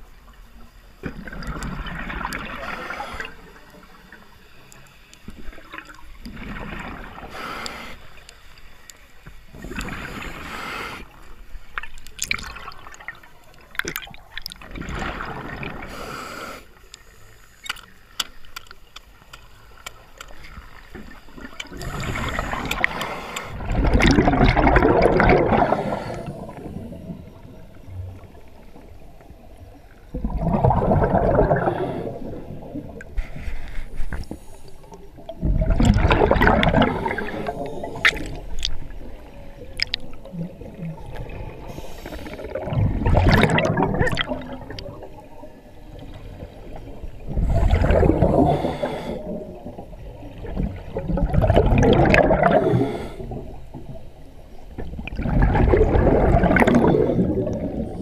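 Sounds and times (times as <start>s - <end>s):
scuba regulator breathing underwater: 2.4s - 3.7s, 7.1s - 8.3s, 9.5s - 11.3s, 15.0s - 17.6s, 21.6s - 27.5s, 30.6s - 35.0s, 36.0s - 38.6s, 41.4s - 44.2s, 47.2s - 49.6s, 52.1s - 53.7s, 55.3s - 58.0s.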